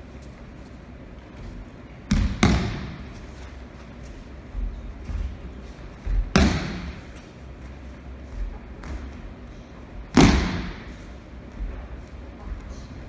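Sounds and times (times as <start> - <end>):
body slapping on mats: 2.1 - 3.2, 6.1 - 7.2, 10.0 - 11.0.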